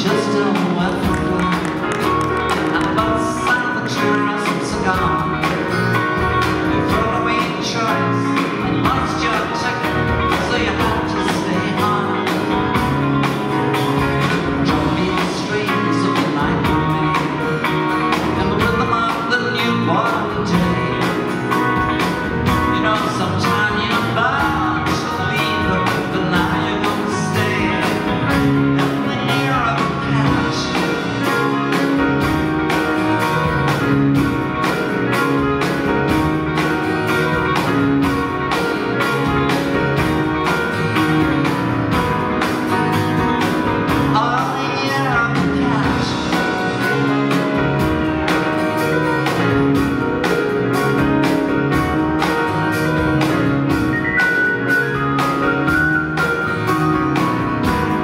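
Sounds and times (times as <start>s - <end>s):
live soft rock band playing: 0.0s - 58.0s.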